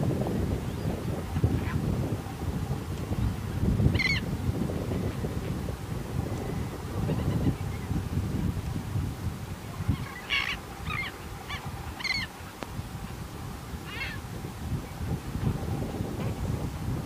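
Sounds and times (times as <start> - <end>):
wind rumble on microphone: 0.0 - 17.0
harsh bird calls: 9.9 - 12.3.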